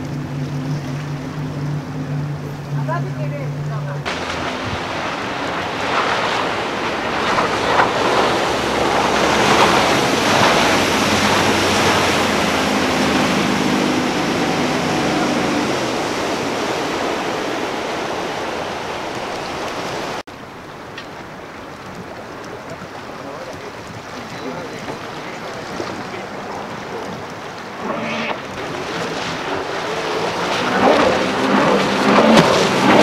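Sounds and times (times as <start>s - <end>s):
boat engine drone: 0.0s - 33.0s
rushing splashing water: 0.0s - 33.0s.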